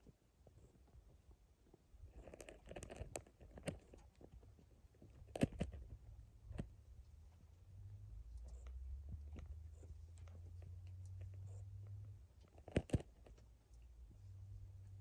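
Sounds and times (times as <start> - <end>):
faint low rumble: 3.4 - 15.0.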